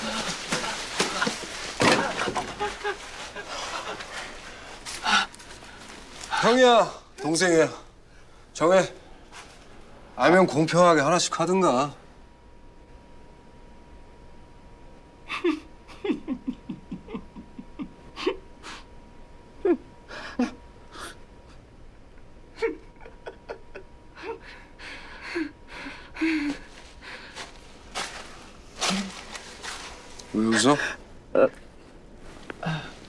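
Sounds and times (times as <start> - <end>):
man gasping and whimpering: 32.6 - 33.0.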